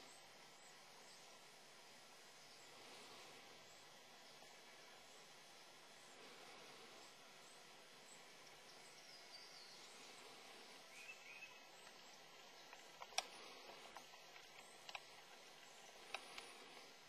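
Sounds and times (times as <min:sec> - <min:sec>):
faint bird chirp: 0:00.0 - 0:17.0
faint steady hiss: 0:00.0 - 0:17.0
sharp clicks: 0:11.8 - 0:17.0.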